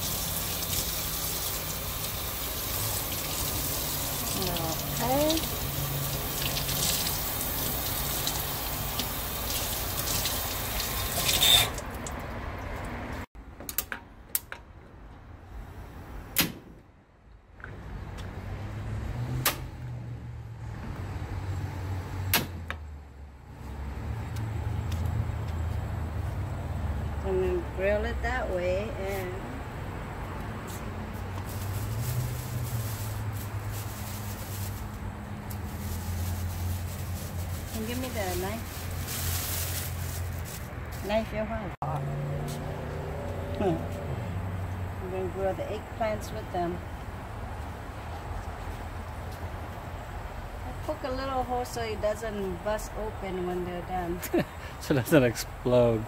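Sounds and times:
faucet water running into sink: 0.0 - 12.2.

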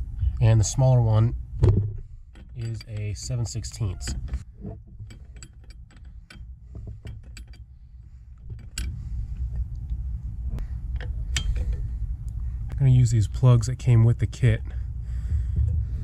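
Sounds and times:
low rumble: 7.7 - 16.0.

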